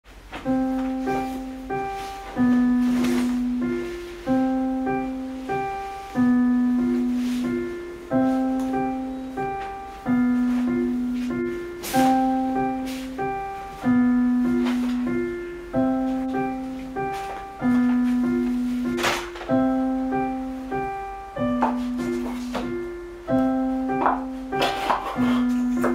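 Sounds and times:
calm piano music: 0:00.1 - 0:25.9.

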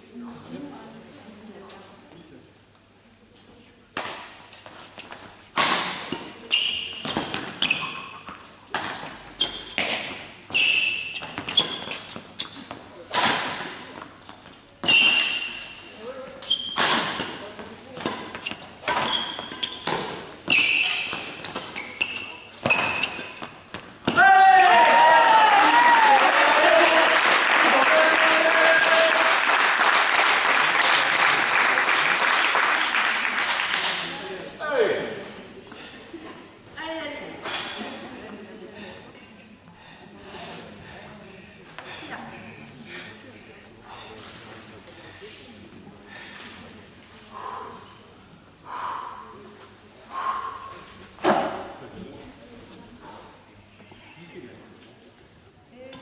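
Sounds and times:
shoes squeaking on court: 0:06.0 - 0:13.0, 0:13.6 - 0:24.1
rackets striking shuttlecock: 0:16.6 - 0:17.4
spectators applauding: 0:24.8 - 0:33.9.

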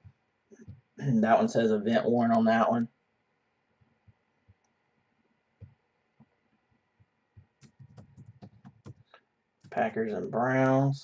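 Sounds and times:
computer keyboard typing: 0:07.4 - 0:10.8.

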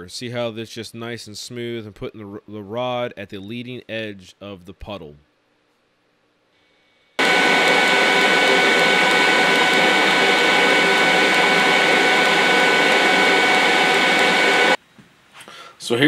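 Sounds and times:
welding arc buzzing hiss: 0:07.2 - 0:14.8.

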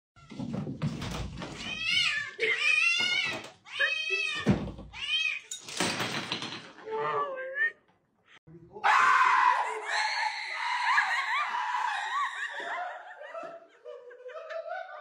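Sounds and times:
cats meowing: 0:01.4 - 0:05.5.

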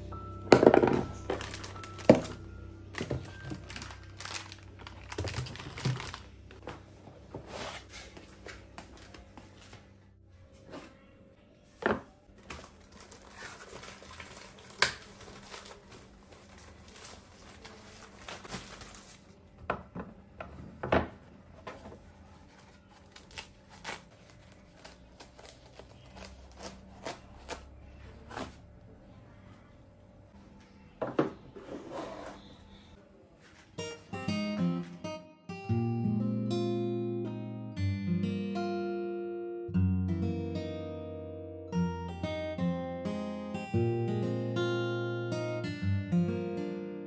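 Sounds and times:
items knocking down: 0:00.5 - 0:06.6
plastic crinkling: 0:00.7 - 0:06.6, 0:12.3 - 0:19.4, 0:21.8 - 0:28.6.

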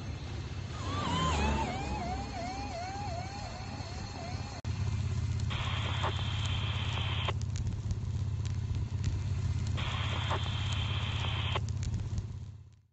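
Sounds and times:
fire low rumble: 0:00.0 - 0:12.9
wildfire crackling: 0:00.0 - 0:12.9
hissing rush: 0:00.7 - 0:07.4, 0:08.4 - 0:11.7.

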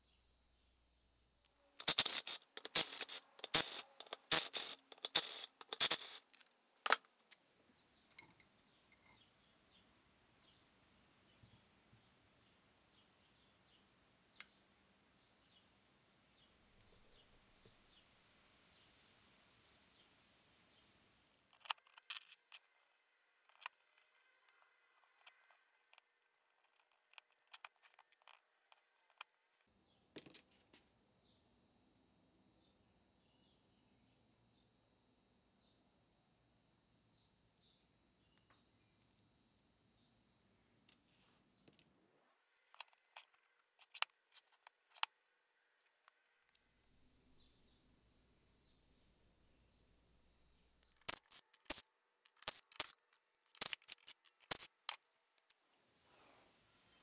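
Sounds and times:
small metal parts clinking: 0:01.8 - 0:07.0, 0:21.3 - 0:22.8, 0:25.0 - 0:29.2, 0:50.8 - 0:55.6.

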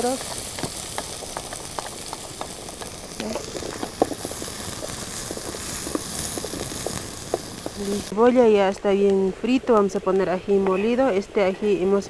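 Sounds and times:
onion sizzling in oil: 0:00.0 - 0:08.5.

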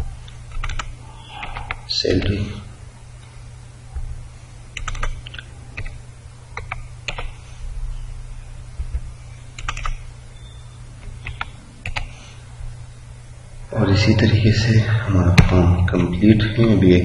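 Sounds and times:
steady low hum: 0:00.0 - 0:17.0
keyboard typing clicks: 0:00.2 - 0:02.3, 0:04.8 - 0:06.0, 0:06.6 - 0:07.4, 0:08.9 - 0:10.0, 0:11.0 - 0:12.1.

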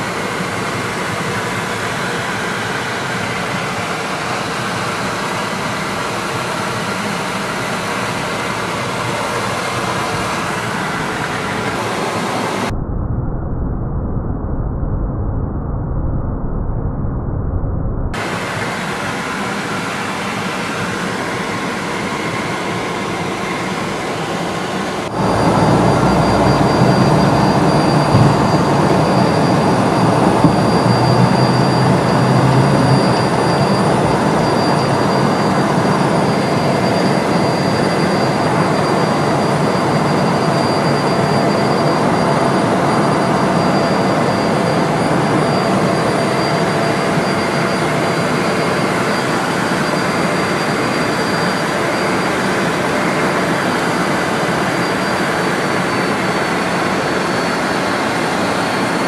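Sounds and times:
jet engines roaring: 0:00.0 - 0:12.7, 0:18.1 - 0:59.0
faint high whine: 0:00.0 - 0:14.9, 0:15.6 - 0:59.0
low rumble: 0:12.7 - 0:18.2, 0:25.1 - 0:34.6.

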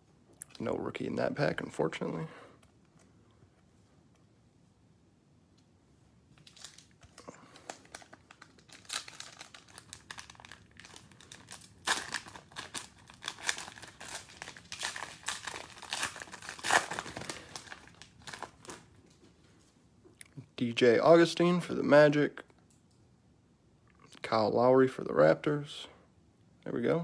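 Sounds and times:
cellophane wrapper crinkling and tearing: 0:06.4 - 0:19.2.

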